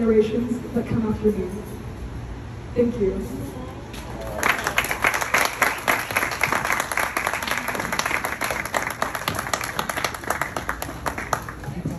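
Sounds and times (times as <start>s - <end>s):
audience applauding: 4.2s - 11.8s.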